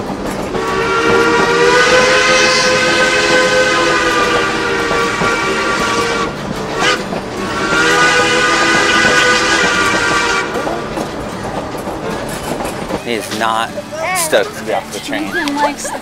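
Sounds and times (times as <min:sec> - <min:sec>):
train rolling rumble: 0:00.0 - 0:16.0
steam locomotive whistle: 0:00.5 - 0:10.7.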